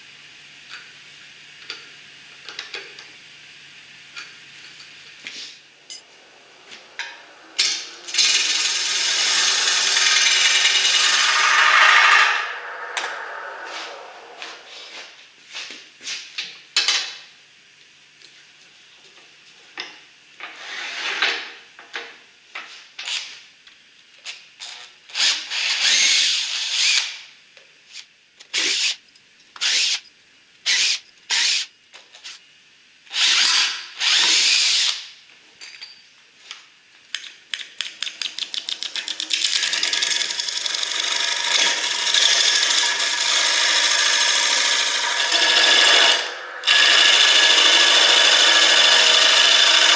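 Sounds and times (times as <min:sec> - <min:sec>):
lathe tool scraping spinning wood: 0:06.6 - 0:15.1, 0:39.0 - 0:49.9
cordless drill driving screws: 0:33.2 - 0:35.0, 0:40.7 - 0:49.9.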